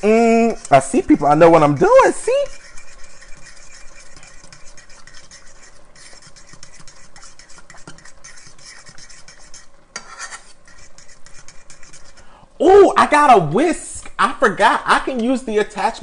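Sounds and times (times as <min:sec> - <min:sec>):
spoon scraping a saucepan: 0:00.3 - 0:12.3.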